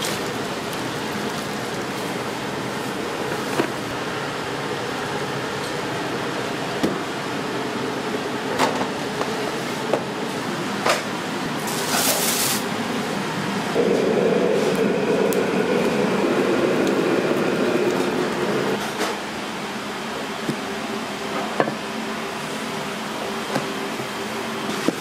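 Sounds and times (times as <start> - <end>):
exhaust fans and burners humming: 0.0 - 25.0
loud rumble: 13.8 - 18.8.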